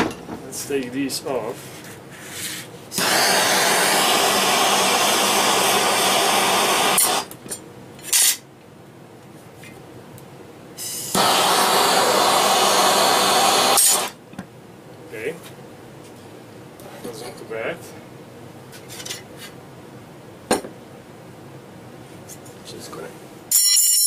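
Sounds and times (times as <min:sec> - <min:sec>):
propane torch flame hissing: 0:02.9 - 0:07.4, 0:10.8 - 0:14.2.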